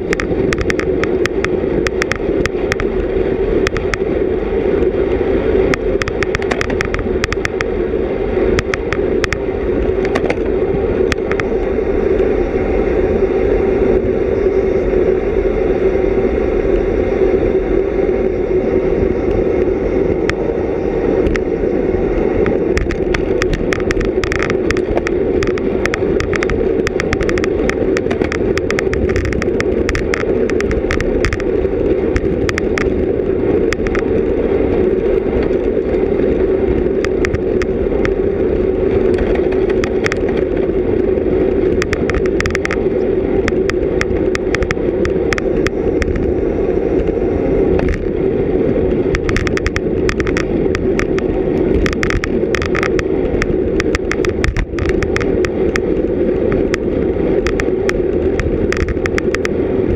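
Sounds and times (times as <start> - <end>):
bicycle wind and road noise: 0.0 - 59.9
sharp clicks: 0.1 - 2.9, 22.4 - 31.5, 49.1 - 55.9, 57.4 - 59.5.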